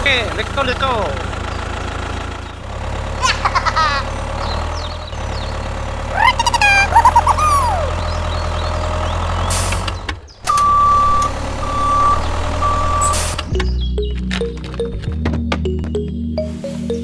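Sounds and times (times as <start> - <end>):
vehicle engine humming: 0.0 - 17.0
high squeaky gliding tones: 6.1 - 8.3
reversing alarm beeping: 10.5 - 13.7.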